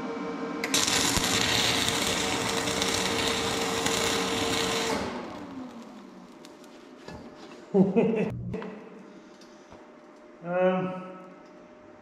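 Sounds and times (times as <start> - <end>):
welder hum winding down: 0.0 - 6.7
welding arc crackling: 0.6 - 6.8.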